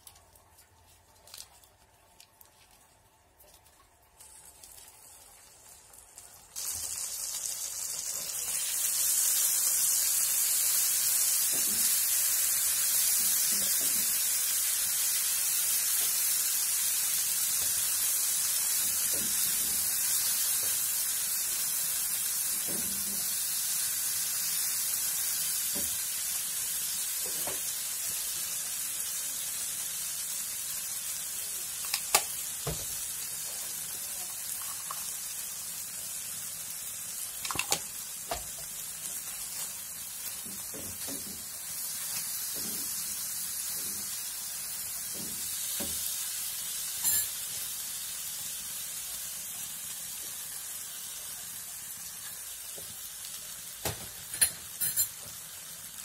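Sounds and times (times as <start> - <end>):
sauce sizzling in hot oil: 4.2 - 56.0.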